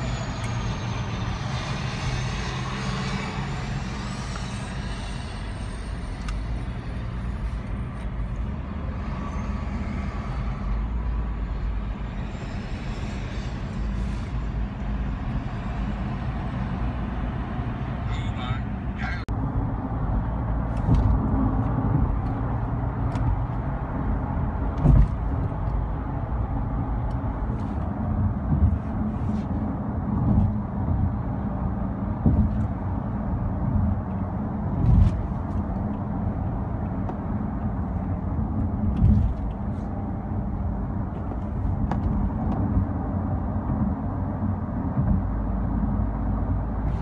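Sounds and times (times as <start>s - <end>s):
car road and engine noise: 0.0s - 47.0s
thumps in car cabin: 24.8s - 25.3s, 32.2s - 32.7s.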